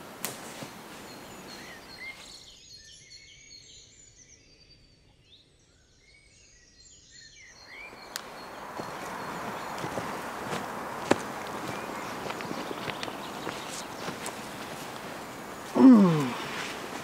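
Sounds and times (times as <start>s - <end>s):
soft forest noise: 0.0s - 3.0s, 7.4s - 17.0s
small birds chirping: 0.0s - 3.9s, 7.0s - 17.0s.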